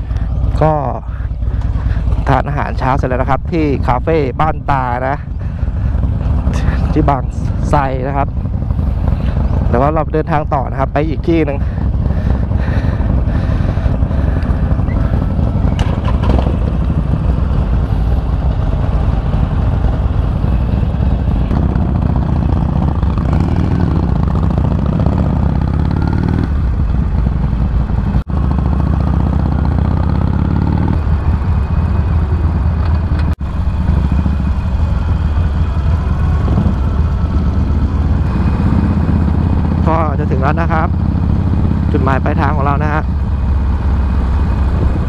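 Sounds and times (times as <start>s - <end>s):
motorcycle engine accelerating: 0.0s - 45.0s.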